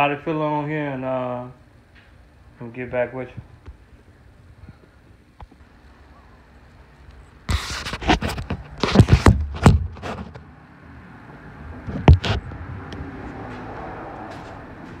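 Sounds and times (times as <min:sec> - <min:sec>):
phone handling scrapes and knocks: 0:07.5 - 0:10.5, 0:11.8 - 0:12.6.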